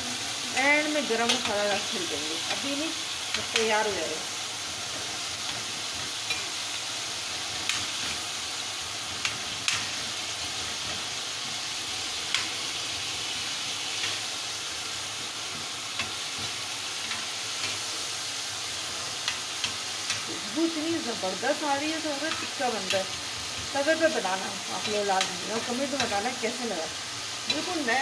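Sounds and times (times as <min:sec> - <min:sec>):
food sizzling in a frying pan: 0:00.0 - 0:28.0.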